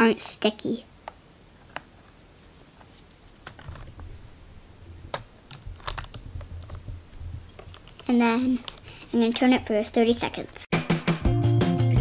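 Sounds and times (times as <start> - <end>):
low rumble of handling: 2.8 - 9.2.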